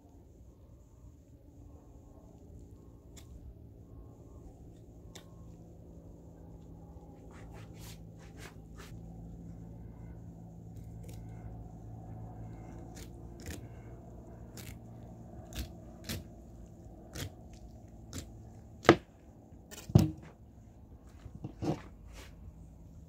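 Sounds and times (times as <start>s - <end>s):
steady low hum: 0.0s - 23.0s
knife cutting and scraping fish: 7.2s - 9.0s, 12.7s - 13.8s, 14.5s - 19.1s, 21.2s - 22.4s
loud knocks on table: 19.9s - 20.3s.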